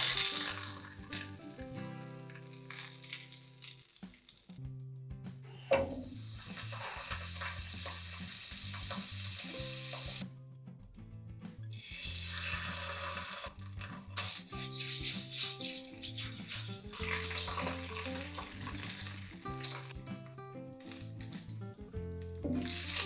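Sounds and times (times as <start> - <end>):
butter sizzling in a frying pan: 0.0 - 4.6, 6.0 - 10.2, 11.8 - 20.0, 22.6 - 23.0
quiet background music with beat: 0.0 - 23.0.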